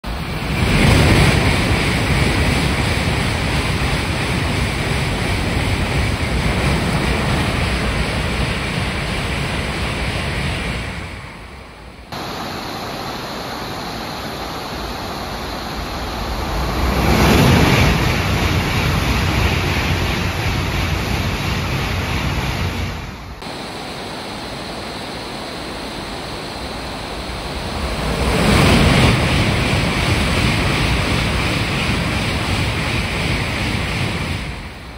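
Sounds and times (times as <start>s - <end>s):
high-speed trains rushing past: 0.0s - 34.9s
heavy rain: 12.0s - 19.6s, 23.2s - 30.9s.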